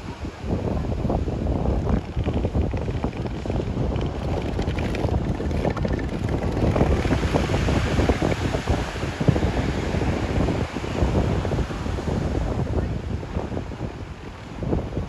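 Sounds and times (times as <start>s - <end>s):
ocean surf: 0.0s - 15.0s
wind buffeting microphone: 0.0s - 15.0s.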